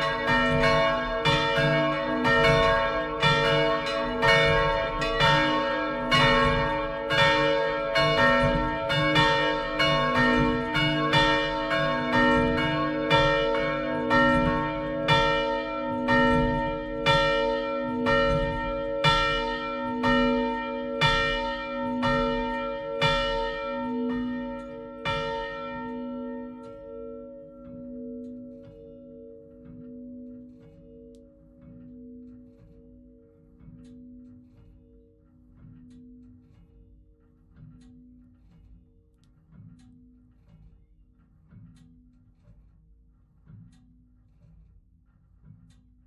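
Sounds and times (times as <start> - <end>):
church bells ringing: 0.0 - 34.5.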